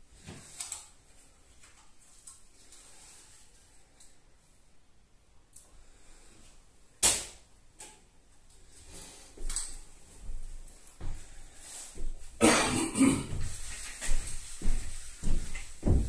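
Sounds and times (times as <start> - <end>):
shuffling and rubbing: 13.3 - 16.0.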